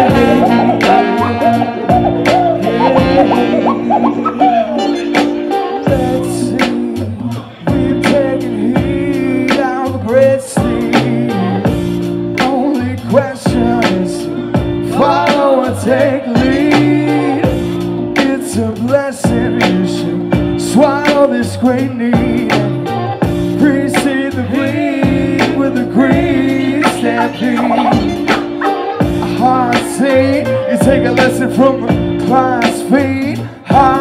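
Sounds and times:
drum beat: 0.0s - 7.0s, 7.7s - 18.4s, 22.1s - 33.1s, 33.7s - 34.0s
wavering lead melody: 0.0s - 7.0s, 22.8s - 32.6s
bass and keyboard chords: 0.0s - 34.0s
hip hop band playing: 0.0s - 34.0s.

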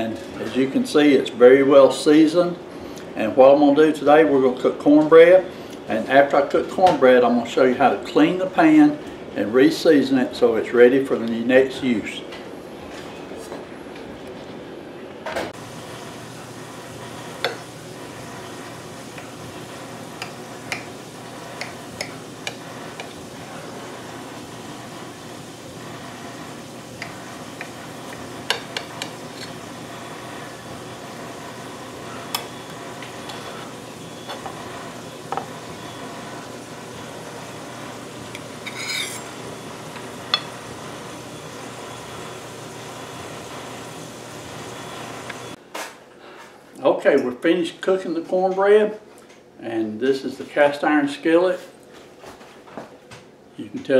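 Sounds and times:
metal server scraping a plate: 38.6s - 39.3s.

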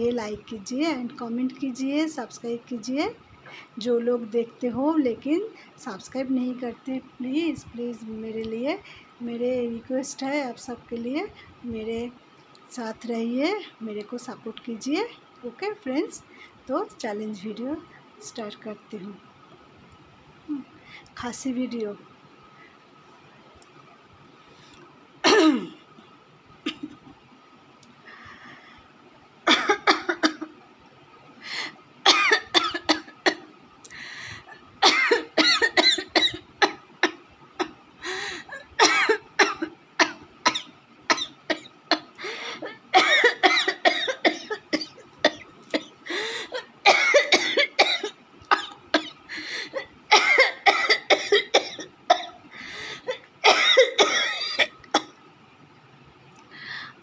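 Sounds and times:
woman coughing: 25.2s - 25.8s, 29.5s - 30.5s, 32.1s - 33.5s, 34.8s - 37.7s, 38.5s - 52.4s, 53.0s - 55.1s.

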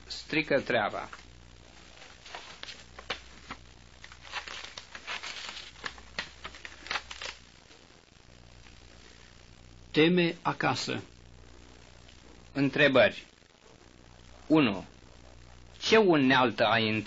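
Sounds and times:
low hum and hiss: 0.0s - 17.0s
tape crackles and clicks: 0.6s - 8.8s.

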